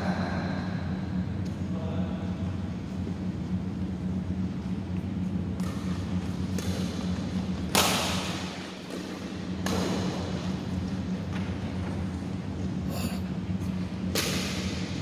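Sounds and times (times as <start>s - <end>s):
steady low hum: 0.0s - 15.0s
rackets hitting shuttlecock: 5.6s - 10.4s, 14.1s - 14.9s.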